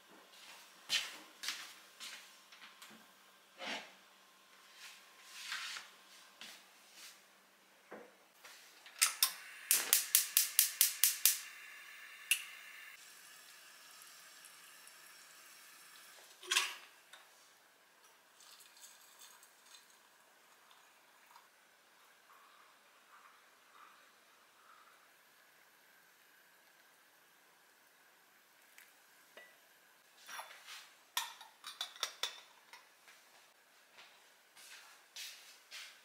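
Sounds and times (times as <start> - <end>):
gas burner hiss: 8.5 - 16.4
gas igniter clicking: 9.0 - 11.5.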